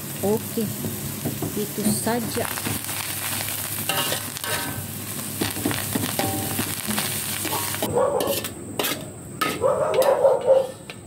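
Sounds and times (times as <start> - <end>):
oil sizzling in a wok: 0.0 - 9.6
metal spatula scraping a wok: 3.8 - 10.0
dog barking: 7.5 - 8.4, 9.6 - 10.8.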